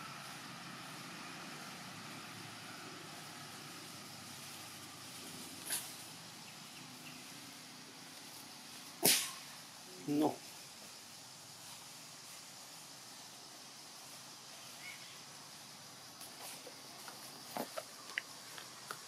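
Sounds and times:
faint outdoor hum: 0.0s - 19.0s
brief crackle: 9.0s - 9.4s.

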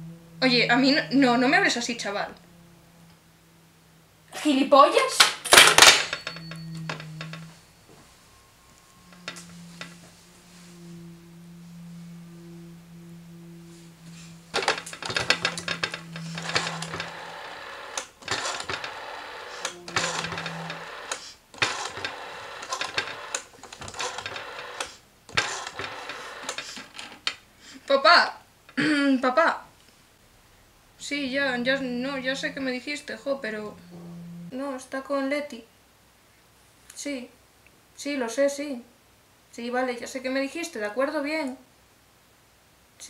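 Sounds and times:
low steady hum: 0.0s - 26.5s, 29.7s - 36.5s
telephone rotary dial whirring: 14.5s - 27.0s.

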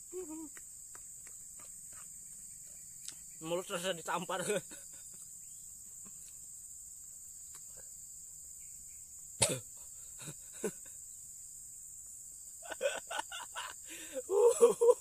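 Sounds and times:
high insect buzz: 0.0s - 15.0s
man coughing: 9.4s - 10.4s.

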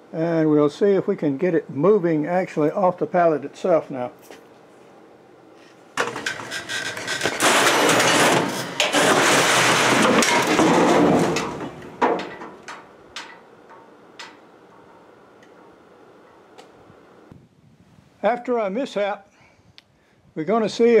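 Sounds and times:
heavy machine scraping and crashing: 6.0s - 12.8s
knocks as things settle: 6.0s - 15.0s.

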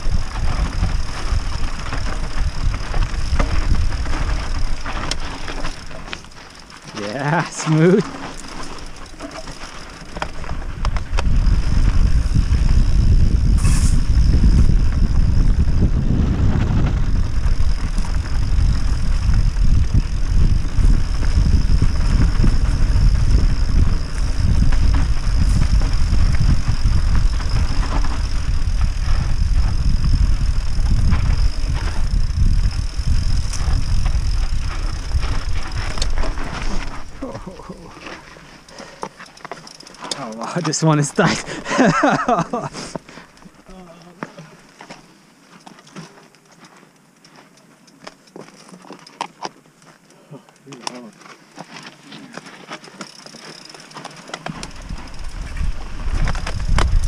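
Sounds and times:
wind rumbling on microphone: 0.0s - 38.7s, 54.3s - 57.0s
bike tyres on rocky dirt: 0.0s - 57.0s.

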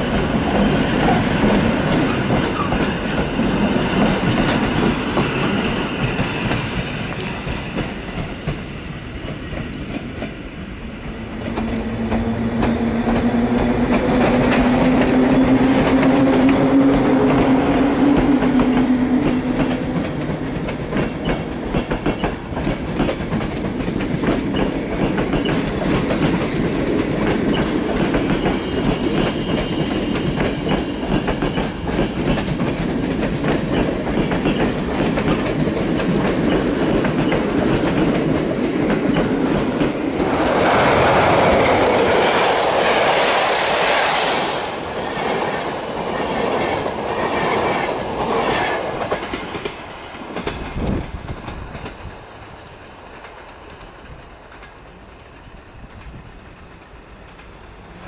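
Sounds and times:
train rushing over steel bridge: 0.0s - 58.0s
train wheels clattering over rail joints: 18.2s - 43.2s.

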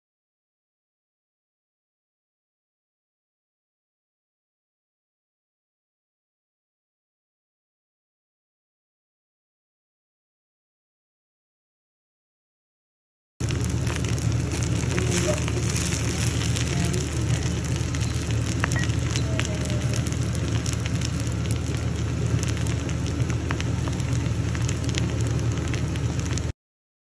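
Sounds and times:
wooden spatula stirring: 13.4s - 21.3s
rice sizzling in a hot pan: 13.4s - 26.5s
steady low hum: 13.4s - 26.5s.

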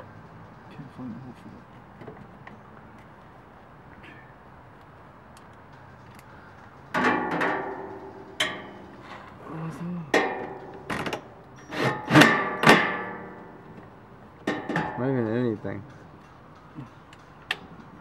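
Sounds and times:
knocks on metal panels: 6.9s - 8.8s, 12.2s - 13.2s, 14.4s - 15.0s.

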